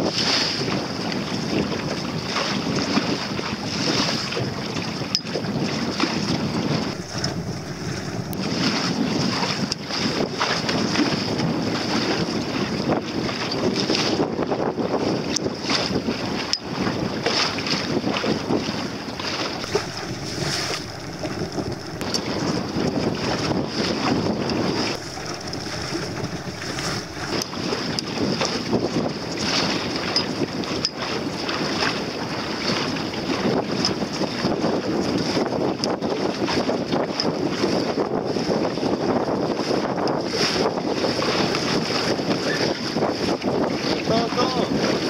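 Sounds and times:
water rushing along hull: 0.0s - 11.6s, 13.0s - 45.0s
wind buffeting microphone: 3.8s - 11.8s, 12.4s - 45.0s
water splashes: 6.8s - 9.5s, 18.7s - 29.6s
sharp ticks: 24.8s - 28.1s.

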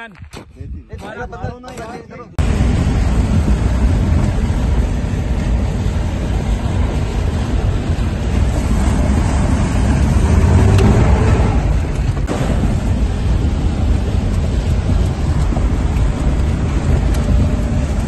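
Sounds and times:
vehicle engine and tyres rumbling: 1.1s - 18.0s.

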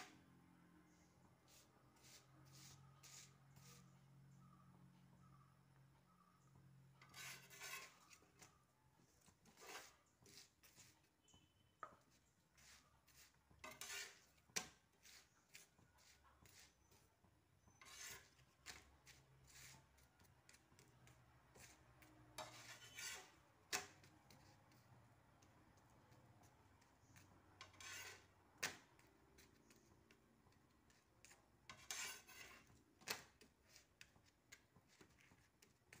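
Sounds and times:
steel spatula scraping an iron pan: 1.5s - 4.0s, 7.0s - 8.5s, 9.2s - 11.5s, 12.5s - 20.1s, 21.5s - 24.8s, 27.6s - 28.9s, 31.7s - 33.3s.

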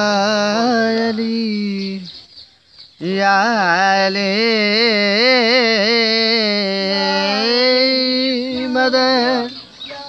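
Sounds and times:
man singing melismatic notes: 0.0s - 2.2s, 3.0s - 9.8s.

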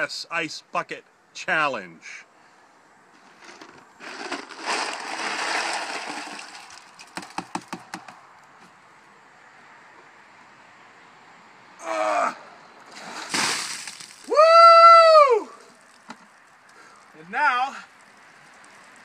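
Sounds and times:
rustling: 3.2s - 7.4s
ice cubes rattling in bucket: 3.5s - 7.4s.

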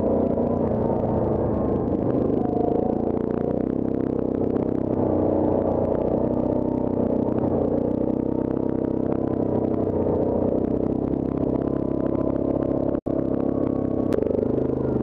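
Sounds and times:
atv engine running: 0.0s - 15.0s.

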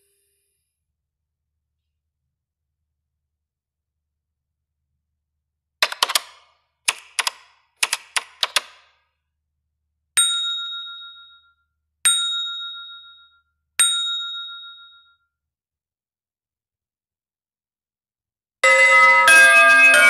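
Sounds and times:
run of sharp clicks: 5.8s - 8.9s
bright dings: 10.2s - 15.3s.

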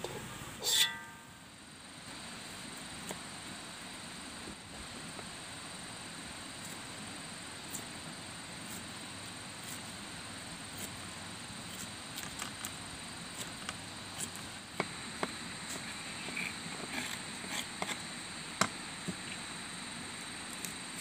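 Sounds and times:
steady background hiss: 0.0s - 21.0s.

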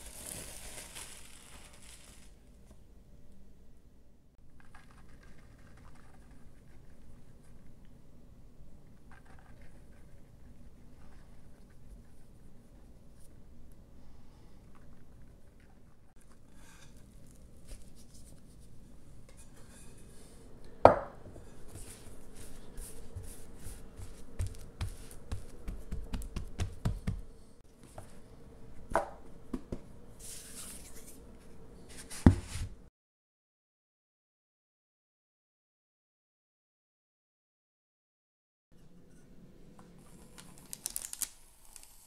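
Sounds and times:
low room noise: 0.0s - 32.9s, 38.8s - 42.0s
hands patting dough: 21.7s - 27.4s.

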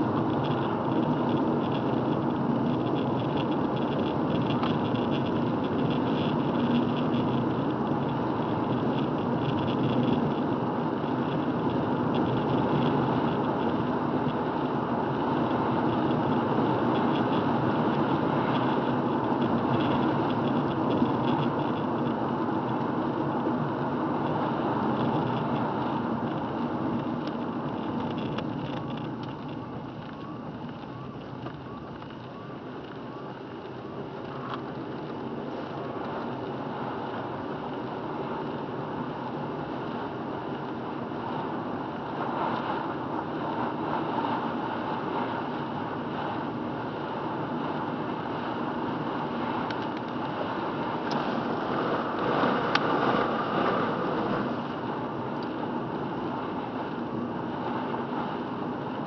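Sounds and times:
car engine running: 0.0s - 40.4s, 41.0s - 59.0s
tyre noise on wet road: 0.0s - 59.0s.

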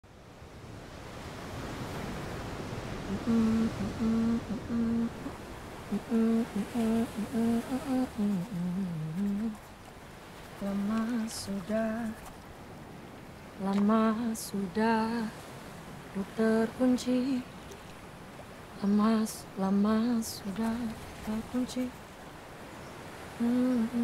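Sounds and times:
sea surf: 0.1s - 24.0s
woman humming a slow melody: 3.0s - 9.6s, 23.3s - 24.0s.

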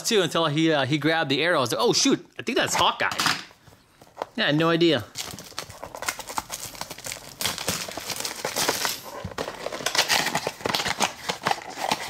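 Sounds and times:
packaging crinkling and tearing: 5.1s - 12.0s.

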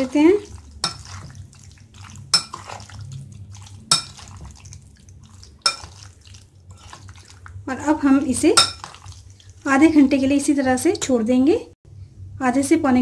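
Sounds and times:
spoon stirring wet marinade: 0.0s - 11.1s
spoon clinking against glass: 2.4s - 2.7s, 3.9s - 4.2s, 5.7s - 6.0s, 8.6s - 8.9s.

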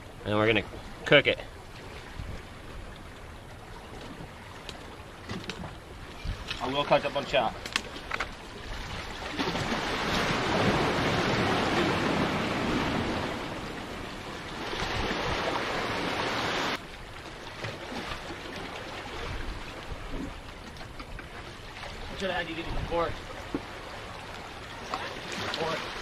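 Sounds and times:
sea surf washing against rocks: 6.2s - 16.8s, 21.3s - 26.0s.

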